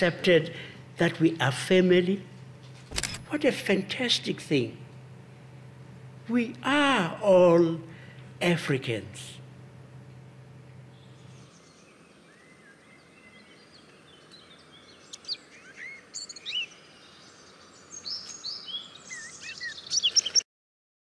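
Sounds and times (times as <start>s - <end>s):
faint outdoor hiss: 0.0s - 20.4s
birds chirping and whistling: 10.9s - 20.4s.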